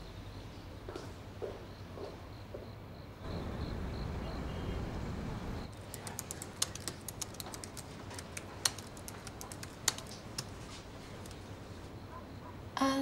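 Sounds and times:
laptop keyboard typing: 5.7s - 11.6s.

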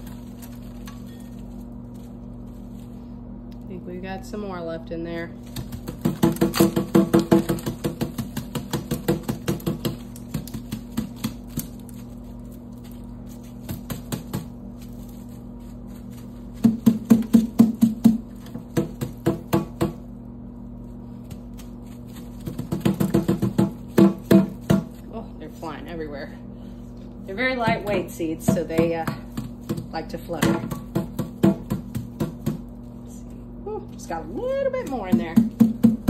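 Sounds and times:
sponge banging against metal sink: 5.5s - 11.8s, 16.6s - 20.0s, 22.4s - 25.0s, 27.5s - 32.7s, 34.8s - 36.0s.

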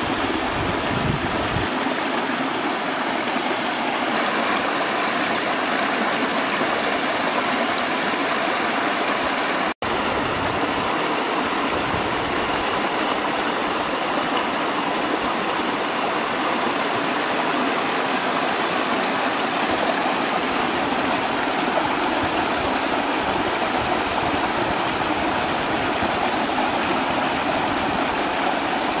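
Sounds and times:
stream rushing over rocks: 0.0s - 29.0s.

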